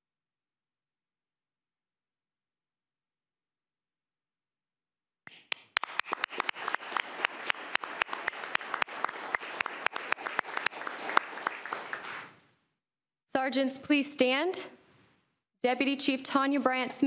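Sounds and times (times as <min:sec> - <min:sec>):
audience applauding: 0:05.3 - 0:12.4.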